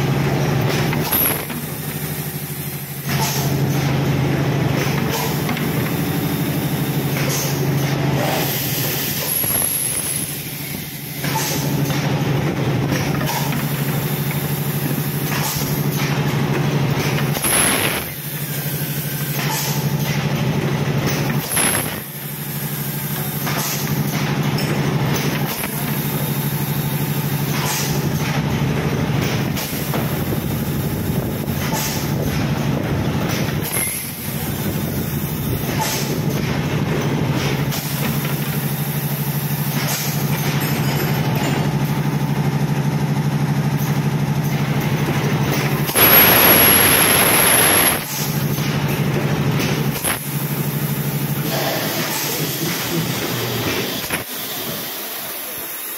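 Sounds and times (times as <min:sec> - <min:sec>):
compressed air blast: 0:01.0 - 0:01.9, 0:08.3 - 0:10.7, 0:17.3 - 0:18.8, 0:21.4 - 0:22.8, 0:45.9 - 0:48.4, 0:49.9 - 0:50.4
machine hum: 0:42.2 - 0:51.5.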